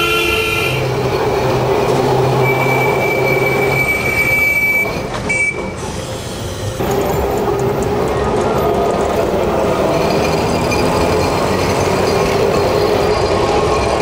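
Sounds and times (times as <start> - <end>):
tram running gear noise: 0.0 - 14.0
tram wheels squealing: 0.0 - 14.0.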